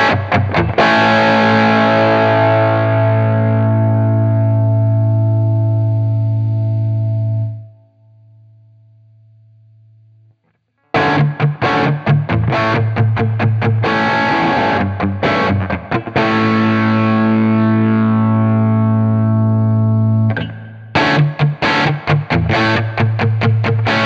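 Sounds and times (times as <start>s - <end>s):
distorted electric guitar chords: 0.0s - 8.5s, 10.9s - 24.0s.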